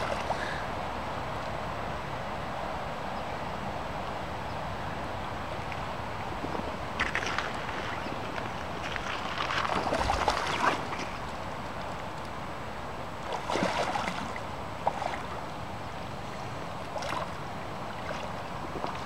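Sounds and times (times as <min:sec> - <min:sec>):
moving water hiss: 0:00.0 - 0:00.8
fish splashing and thrashing: 0:06.9 - 0:11.9, 0:13.3 - 0:15.3.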